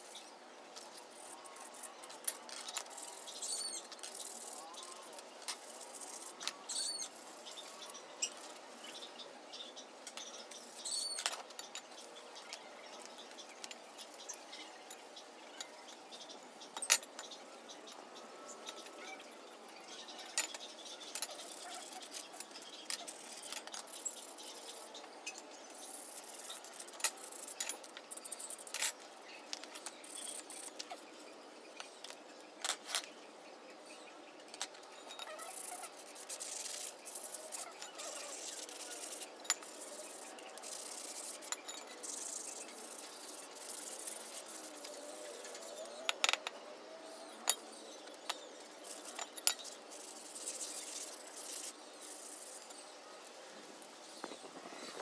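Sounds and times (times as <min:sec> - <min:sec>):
steel bars clinking on concrete: 0:34.5 - 0:44.4, 0:45.5 - 0:46.6.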